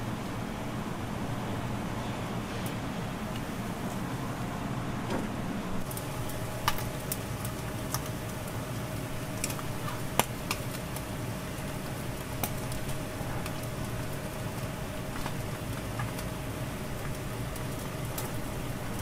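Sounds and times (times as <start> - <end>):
steady hum: 0.0 - 19.0
fish sizzling under broiler: 5.8 - 19.0.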